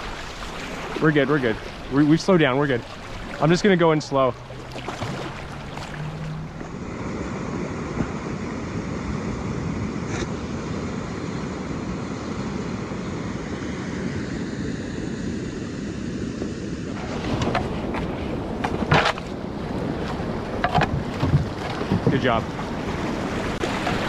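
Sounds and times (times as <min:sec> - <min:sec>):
river water pouring over a weir: 0:00.0 - 0:06.8
churning whitewater splashes: 0:00.0 - 0:09.1, 0:16.9 - 0:24.0
wind buffeting microphone: 0:00.0 - 0:24.0.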